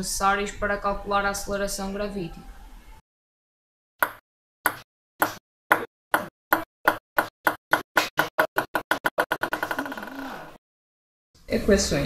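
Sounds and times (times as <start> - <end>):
ping-pong ball bouncing on table: 4.0 - 10.0.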